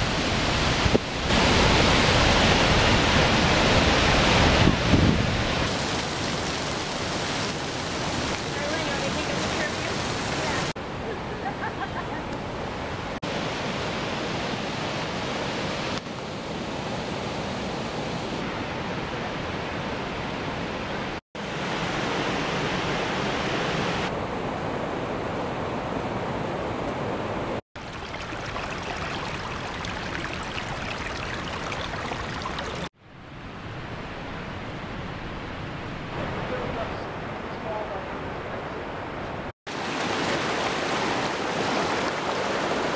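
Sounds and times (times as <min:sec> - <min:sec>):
waterfall rushing: 0:00.0 - 0:04.8, 0:05.4 - 0:10.8, 0:27.8 - 0:32.9, 0:39.7 - 0:42.9.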